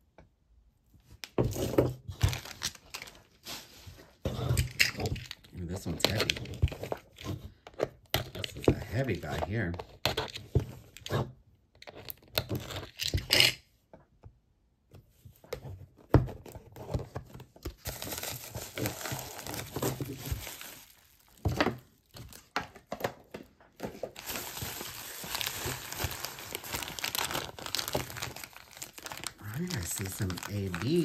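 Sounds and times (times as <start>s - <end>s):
packing material crinkling and tearing: 2.2s - 7.1s, 17.7s - 22.6s, 23.8s - 31.0s.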